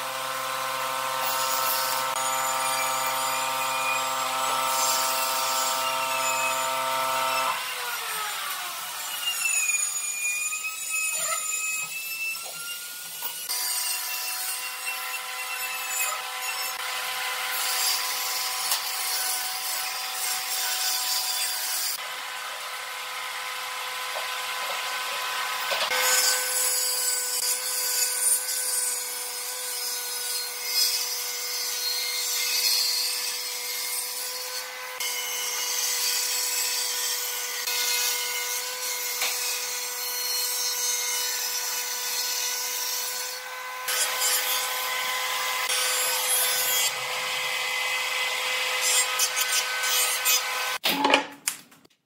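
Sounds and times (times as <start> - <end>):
power tool motor running: 0.0 - 10.7, 42.8 - 50.8.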